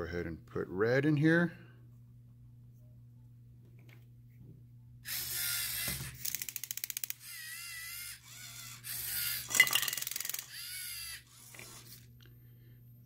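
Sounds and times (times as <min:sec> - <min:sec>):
servo motors whirring: 0:05.1 - 0:12.1.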